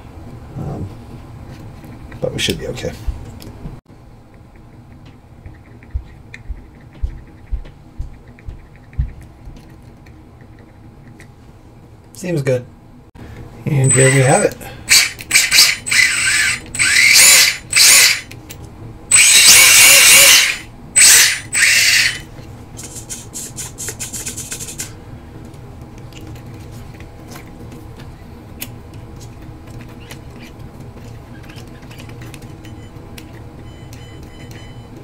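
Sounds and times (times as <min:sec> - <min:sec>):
small electric motor whirring: 0:13.8 - 0:18.3, 0:19.1 - 0:22.2
faint buzz: 0:19.1 - 0:22.2.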